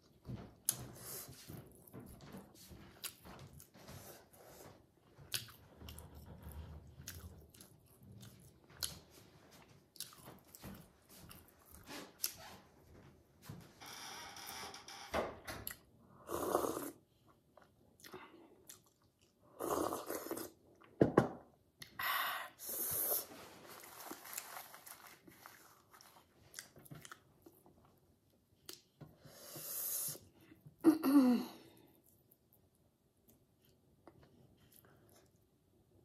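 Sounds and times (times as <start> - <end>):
person chewing food: 0.5 - 12.5, 15.6 - 21.0, 23.1 - 30.6.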